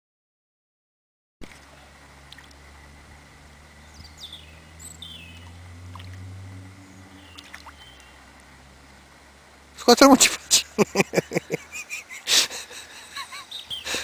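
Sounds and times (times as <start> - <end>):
low steady rumble: 1.4 - 13.7
high bird chirps: 3.8 - 5.6, 6.8 - 8.2, 13.3 - 13.9.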